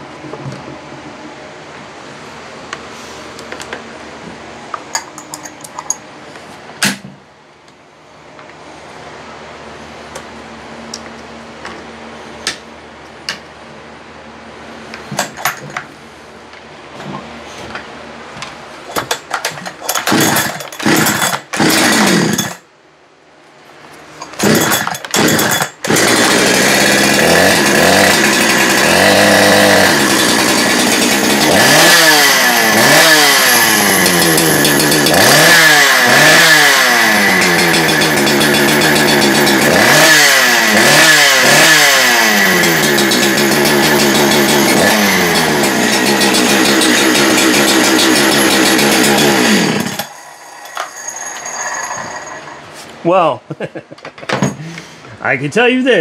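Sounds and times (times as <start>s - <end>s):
chainsaw sputtering and revving: 19.0s - 22.6s, 24.3s - 50.2s.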